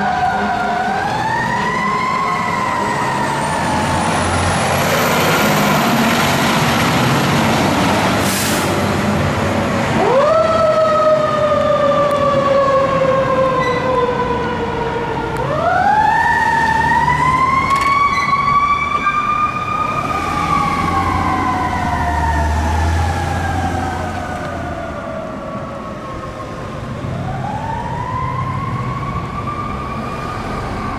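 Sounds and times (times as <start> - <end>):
fire truck siren wailing: 0.0 - 30.9
truck engine pulling away: 2.4 - 11.8, 19.4 - 25.2.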